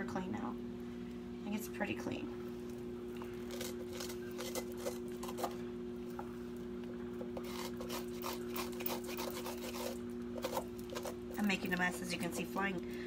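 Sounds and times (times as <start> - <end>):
tool scraping inside pumpkin: 7.4 - 11.2.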